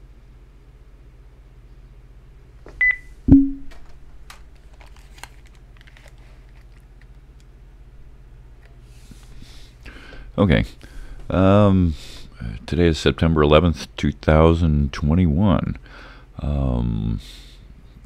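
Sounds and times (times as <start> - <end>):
low electrical hum: 0.0 - 18.0
short electronic beep: 2.8 - 3.7
headphones clicks and rustles: 3.7 - 7.2.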